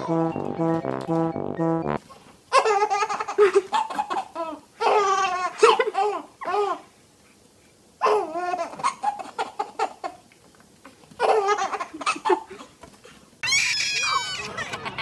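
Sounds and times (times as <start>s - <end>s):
baby laughing: 11.2s - 12.5s.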